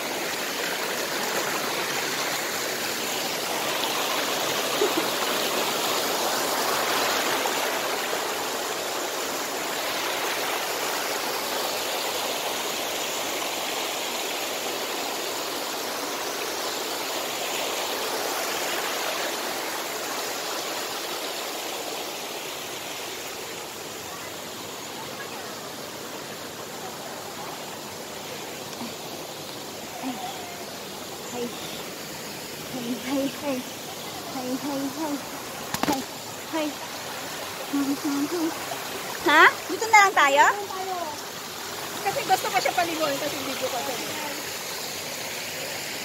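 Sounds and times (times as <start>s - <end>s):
stream rushing over rocks: 0.0s - 46.0s.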